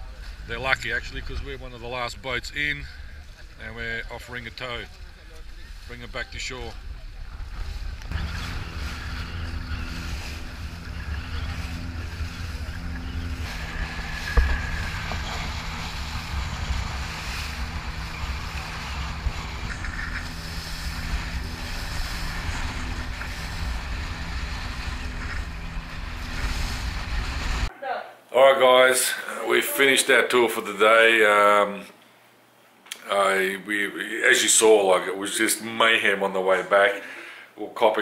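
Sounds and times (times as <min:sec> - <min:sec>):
wind: 0:00.0 - 0:27.7
boat engine running: 0:04.3 - 0:27.7
water rushing over choppy sea: 0:04.4 - 0:27.7
sharp thump: 0:14.2 - 0:15.9.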